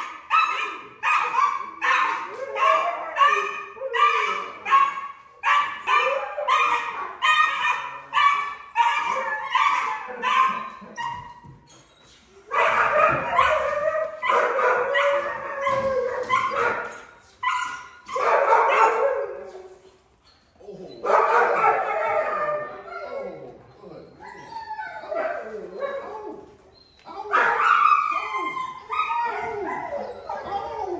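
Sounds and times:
puppies barking excitedly: 0:00.0 - 0:11.4, 0:12.4 - 0:19.4, 0:21.0 - 0:22.9, 0:27.1 - 0:30.9.

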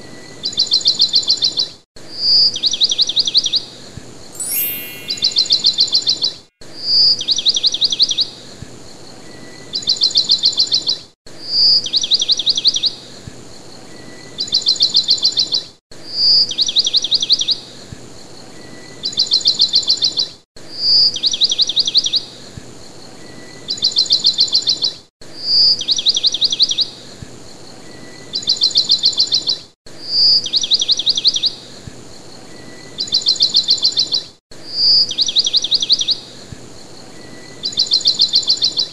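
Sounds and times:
bird-like chirping and trills: 0:04.4 - 0:06.4, 0:36.8 - 0:38.9.

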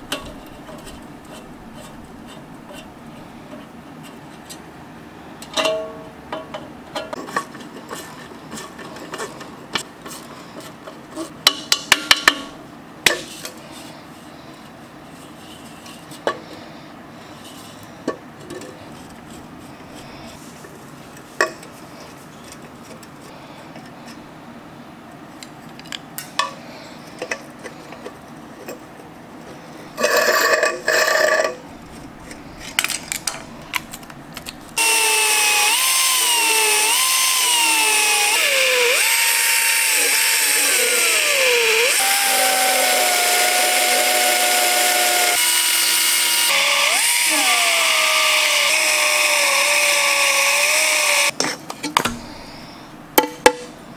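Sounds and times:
air belt sander on metal: 0:34.7 - 0:51.3.

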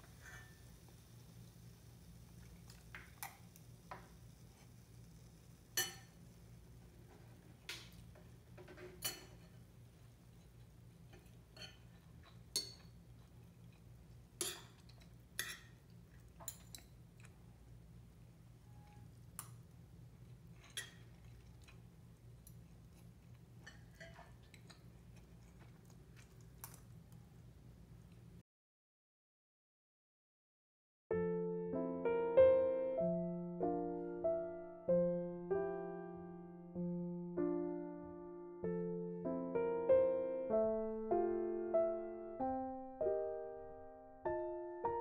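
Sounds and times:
cutlery clinking on ceramic bowl: 0:05.8 - 0:06.1, 0:08.8 - 0:09.6, 0:11.1 - 0:13.0, 0:14.4 - 0:15.8, 0:16.4 - 0:16.9, 0:20.6 - 0:21.2, 0:23.6 - 0:24.8.

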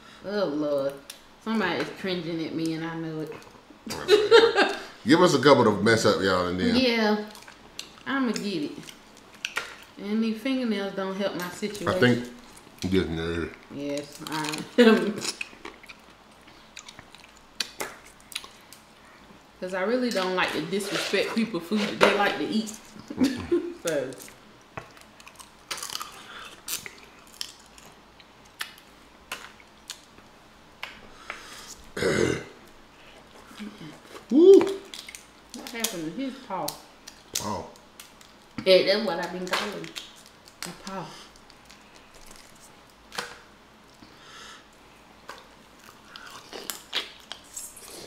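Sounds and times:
chewing: 0:07.2 - 0:08.1, 0:12.0 - 0:19.4, 0:24.1 - 0:30.2, 0:45.3 - 0:48.0
crawfish shells cracking: 0:07.3 - 0:10.0, 0:13.6 - 0:18.9, 0:23.8 - 0:30.2, 0:34.2 - 0:36.0, 0:36.6 - 0:44.0.

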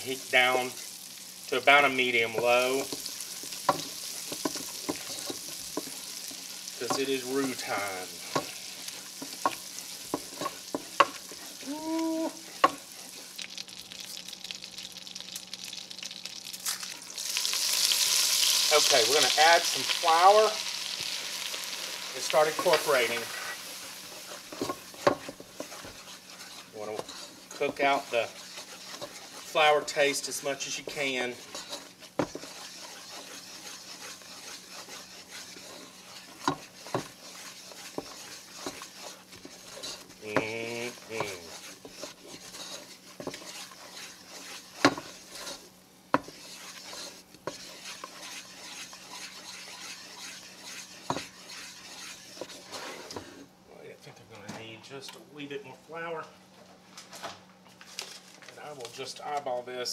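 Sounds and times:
butter sizzling in frying pan: 0:00.0 - 0:53.1
wooden spoon scraping saucepan: 0:01.5 - 0:11.7, 0:12.4 - 0:13.3, 0:18.4 - 0:53.5
wooden spoon knocking on pan: 0:32.2 - 0:32.5, 0:40.3 - 0:40.6.

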